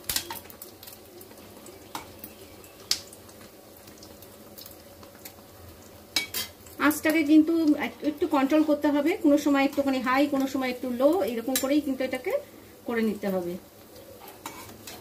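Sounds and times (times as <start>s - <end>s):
oil sizzling and crackling: 0.0s - 15.0s
metal spoon clicking on pan: 11.4s - 11.8s.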